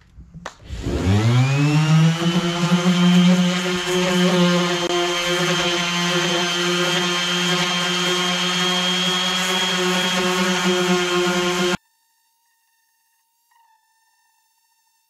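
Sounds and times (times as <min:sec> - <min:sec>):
electric sander on fiberglass: 0:00.7 - 0:11.8.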